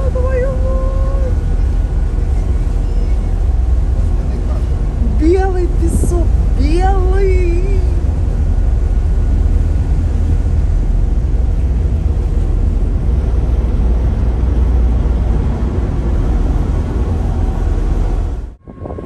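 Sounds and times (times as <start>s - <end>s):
ferry engine rumble: 0.0s - 19.0s
wind buffeting microphone: 0.0s - 19.0s.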